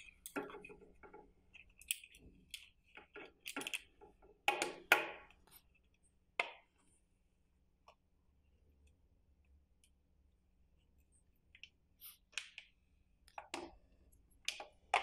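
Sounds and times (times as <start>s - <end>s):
plastic parts clicking on table: 1.6s - 3.9s.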